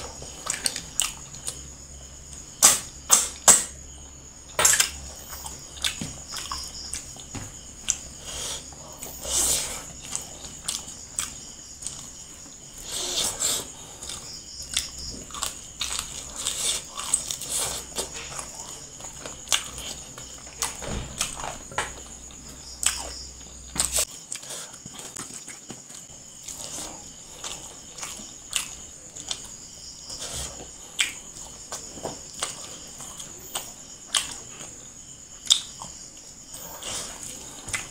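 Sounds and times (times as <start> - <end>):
wet chewing: 4.6 - 34.8.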